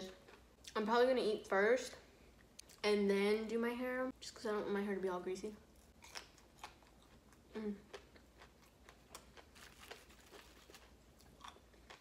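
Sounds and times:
paper wrapper crinkling: 9.5s - 11.0s.

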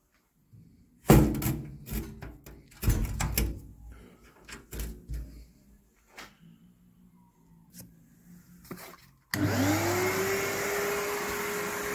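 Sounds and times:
sheet metal door clunking shut: 1.1s - 3.7s.

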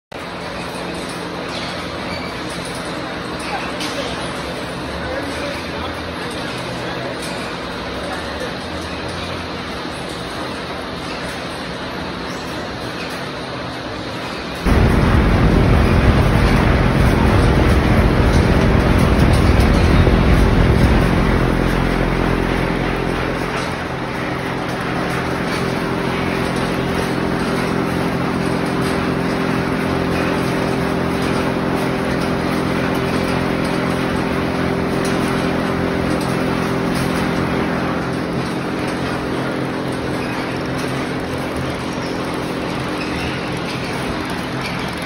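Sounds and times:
machine hum with tones: 14.3s - 45.0s
low rumble: 14.6s - 38.8s.

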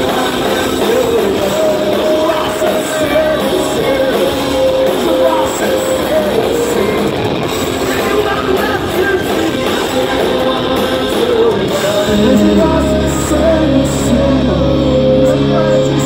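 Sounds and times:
live rock band playing loud: 0.0s - 16.0s
steady low bass: 12.1s - 16.0s.

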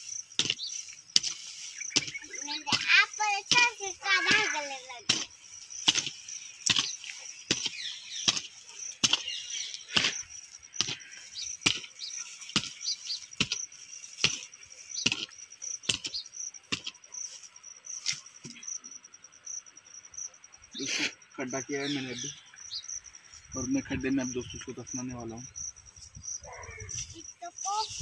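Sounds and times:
crickets chirping: 0.0s - 28.0s
hoe chopping into soil: 0.3s - 2.9s, 5.1s - 17.0s.

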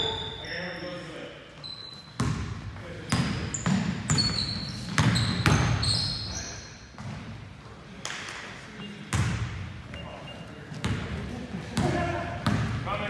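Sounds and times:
sneakers squeaking: 0.0s - 7.6s, 8.5s - 12.8s
basketball bouncing on wood floor: 2.2s - 2.5s, 3.1s - 5.8s.

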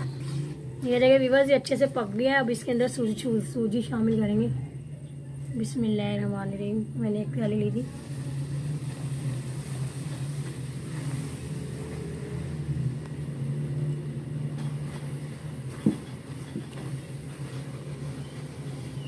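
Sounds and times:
spatula stirring in wok: 7.8s - 13.8s.

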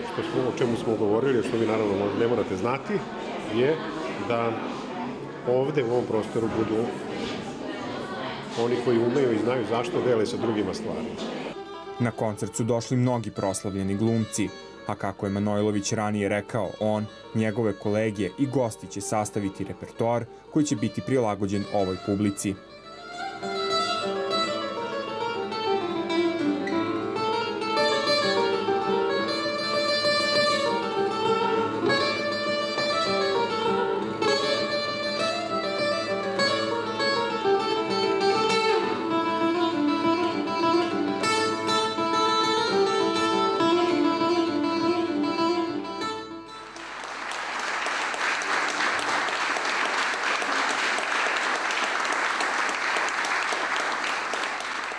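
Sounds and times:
acoustic guitar plucked notes: 11.6s - 46.9s
audience applause: 46.7s - 54.9s.

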